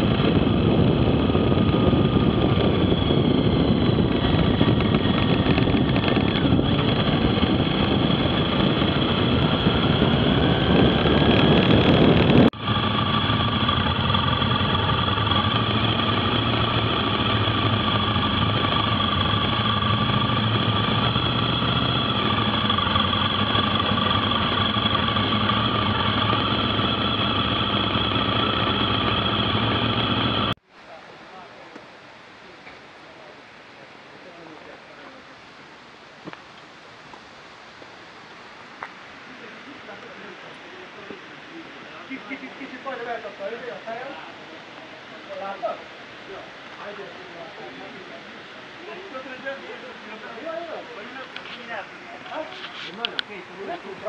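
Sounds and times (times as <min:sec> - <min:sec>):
motorcycle engine running: 0:00.0 - 0:30.6
rushing wind: 0:00.0 - 0:30.8, 0:35.3 - 0:54.0
high whine: 0:00.0 - 0:54.0.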